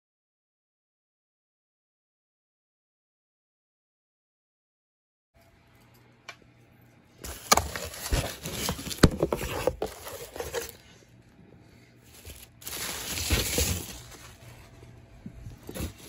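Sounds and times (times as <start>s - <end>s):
plastic wrap crinkling: 7.2s - 11.1s, 12.0s - 16.0s.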